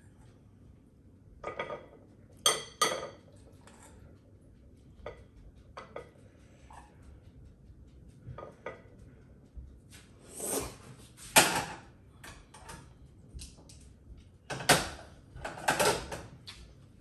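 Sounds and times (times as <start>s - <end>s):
metal spoon clinking saucepan: 1.4s - 3.2s
cookware clanking: 1.4s - 3.9s.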